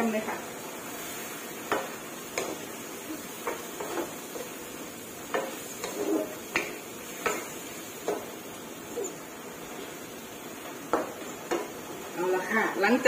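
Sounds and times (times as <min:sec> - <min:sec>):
faint hiss from pan: 0:00.0 - 0:13.0
wooden spatula knocking on wok: 0:05.3 - 0:08.3, 0:10.9 - 0:11.8.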